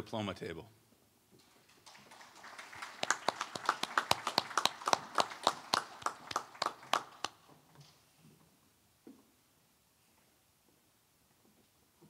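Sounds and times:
small group clapping: 1.4 - 7.5.

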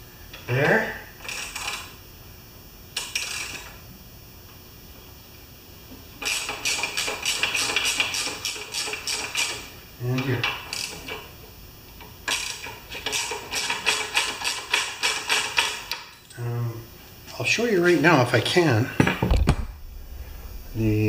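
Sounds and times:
socket ratchet clicking rapidly: 6.2 - 9.7, 12.3 - 16.0.

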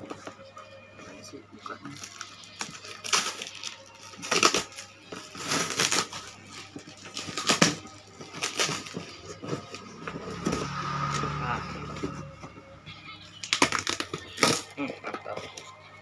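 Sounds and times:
cardboard ripping: 2.0 - 9.8.

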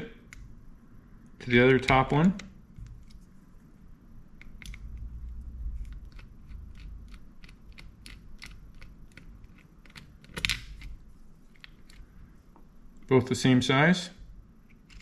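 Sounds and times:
screwdriver clicks and creaks: 5.8 - 12.1, 14.7 - 15.0.

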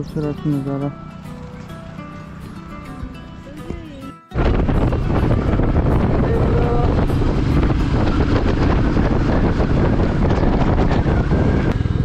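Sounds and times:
motorcycle engine: 0.9 - 3.8, 4.4 - 12.0
wind buffeting microphone: 4.4 - 12.0.

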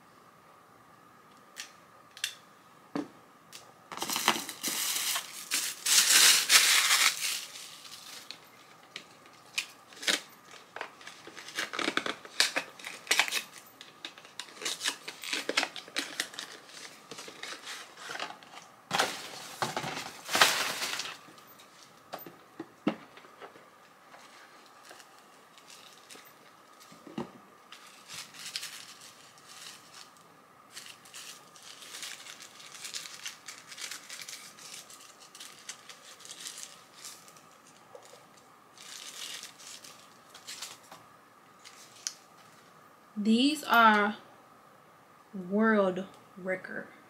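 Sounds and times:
packaging crinkling and tearing: 3.9 - 21.8, 24.1 - 27.1, 27.7 - 41.0, 41.6 - 42.6.

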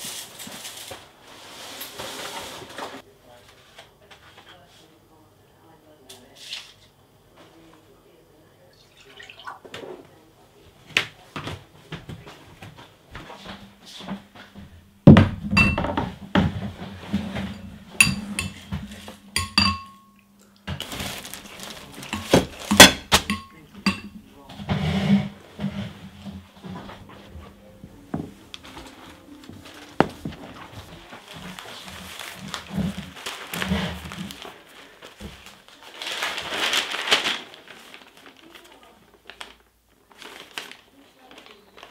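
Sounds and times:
metal spoon clinking on ceramic bowl: 15.6 - 15.9, 18.0 - 18.6, 19.4 - 20.3, 22.1 - 24.1
newspaper pages rustling: 20.8 - 23.6, 26.9 - 41.9.

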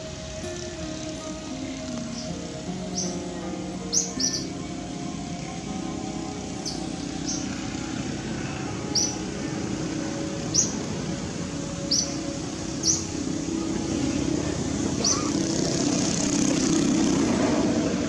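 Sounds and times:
low outdoor rumble: 0.0 - 18.0
small bird chirping: 0.4 - 13.2, 15.0 - 15.9.

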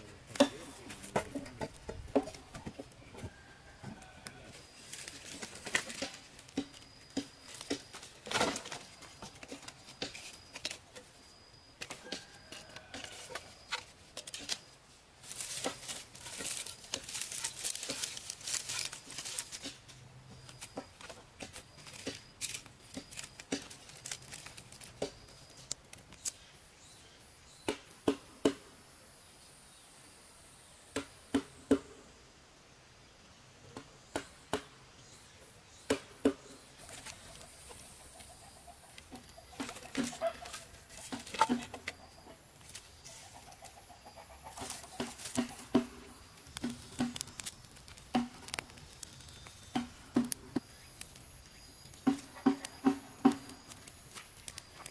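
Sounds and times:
crinkly rustling: 4.5 - 11.1, 12.0 - 26.3.

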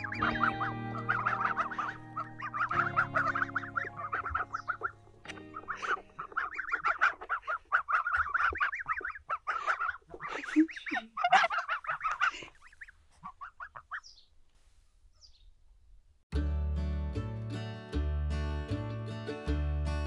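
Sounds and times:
acoustic guitar music: 0.0 - 6.6, 16.3 - 20.0
geese calling: 0.0 - 14.2.

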